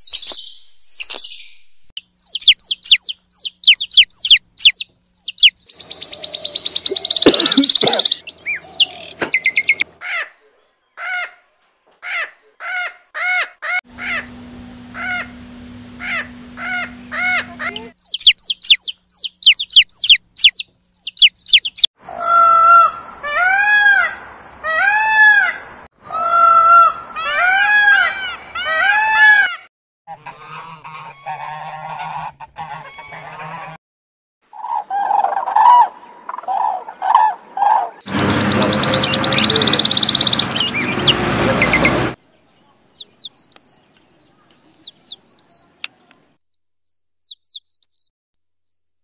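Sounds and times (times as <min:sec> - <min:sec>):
high down-slurred chirps: 0:00.0 - 0:09.9, 0:14.0 - 0:21.9, 0:38.0 - 0:49.0
geese honking: 0:05.7 - 0:10.3, 0:12.8 - 0:18.0, 0:22.2 - 0:33.8, 0:34.6 - 0:42.2.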